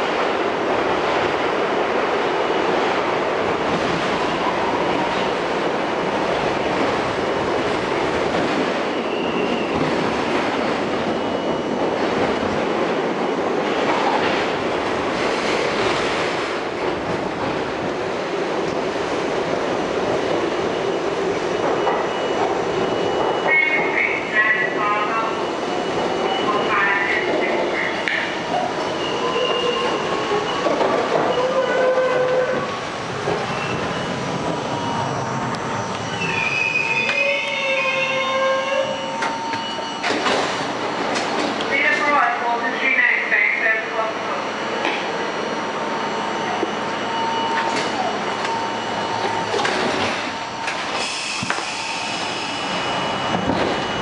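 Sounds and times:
train wheels rumbling on rails: 0.0s - 42.8s, 44.1s - 54.0s
high wheel squeal: 33.4s - 40.3s.

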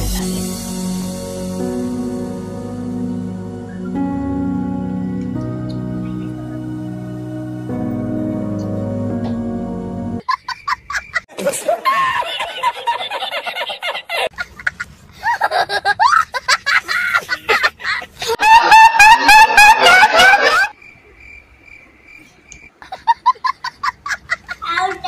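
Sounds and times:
music: 0.0s - 10.2s
high-pitched laughing and giggling: 10.2s - 20.7s, 22.8s - 25.0s.

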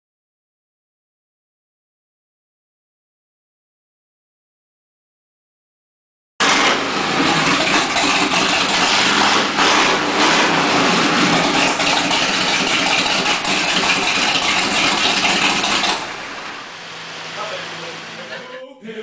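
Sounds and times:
boat engine running loud: 6.4s - 18.6s.

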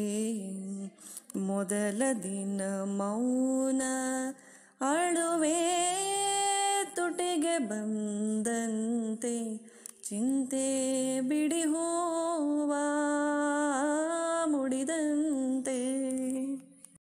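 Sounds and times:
short breath: 1.0s - 1.3s, 4.4s - 4.8s, 9.6s - 10.0s.

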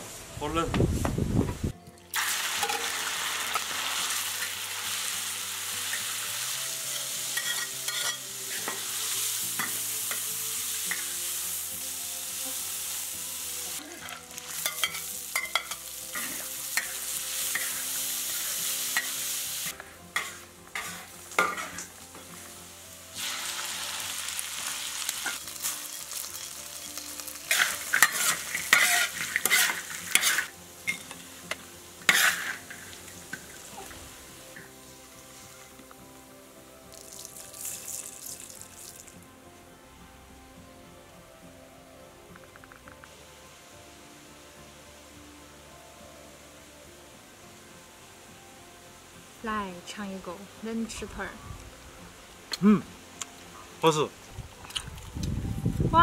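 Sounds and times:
meat sizzling in hot oil: 2.1s - 35.8s, 36.8s - 39.2s
metal spoon scraping a wok: 6.9s - 9.0s, 14.0s - 22.0s, 27.4s - 31.2s, 32.0s - 33.0s.

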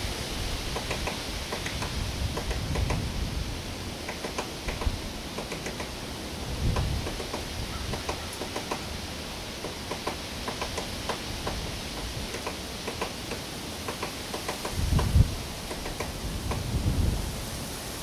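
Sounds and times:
woodpecker tapping on wood: 0.7s - 3.1s, 4.0s - 6.0s, 6.7s - 8.9s, 9.6s - 16.7s.

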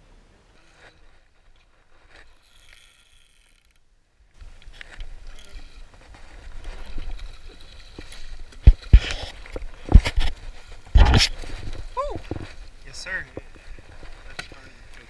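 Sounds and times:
camera handling noise: 8.0s - 10.4s, 11.0s - 11.4s.

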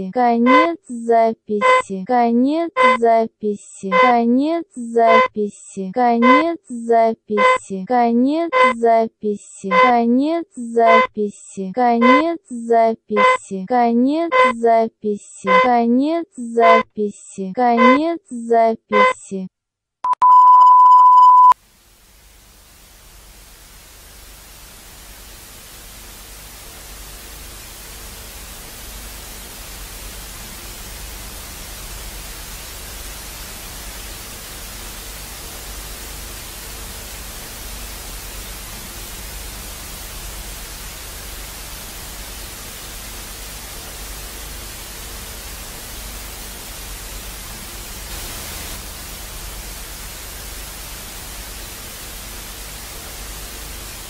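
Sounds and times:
high steady beep: 0.4s - 0.7s, 1.6s - 1.9s, 2.8s - 3.1s, 3.9s - 4.2s, 4.8s - 5.3s, 6.2s - 6.4s, 7.3s - 7.6s, 8.5s - 8.9s, 9.7s - 10.0s, 10.6s - 11.1s, 12.0s - 12.2s, 13.1s - 13.4s, 14.3s - 14.7s, 15.4s - 15.8s, 16.4s - 16.9s, 17.8s - 18.0s, 18.9s - 19.2s, 20.1s - 21.6s
static hiss: 21.6s - 54.0s.

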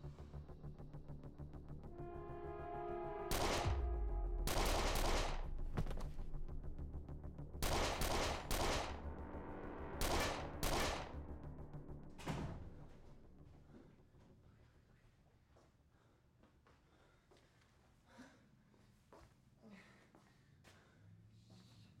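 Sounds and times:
film score with pulsing rhythm: 0.0s - 14.0s
gunshots with echo: 3.3s - 5.7s, 7.6s - 9.1s, 9.9s - 11.3s.

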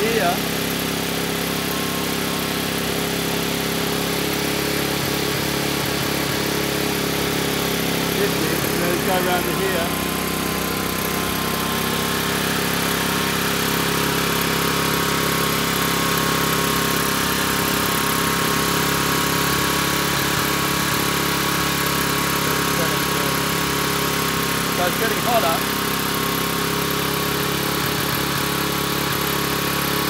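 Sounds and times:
small engine running: 0.0s - 30.0s.

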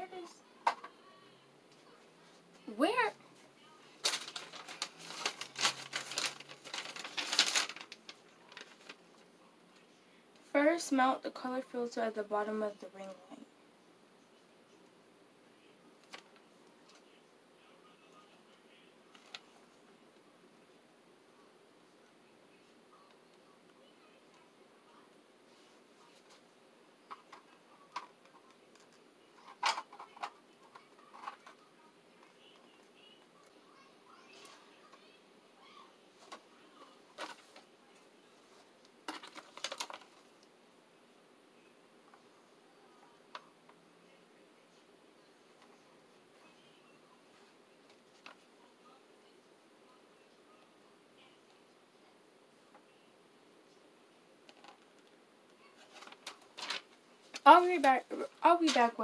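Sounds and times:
small crackles: 3.9s - 10.5s, 16.0s - 17.2s, 19.1s - 19.7s, 27.1s - 36.5s, 37.1s - 40.5s, 54.4s - 58.9s
sheet crinkling and rustling: 4.0s - 9.1s, 37.1s - 37.7s, 39.0s - 40.3s, 55.8s - 59.0s.

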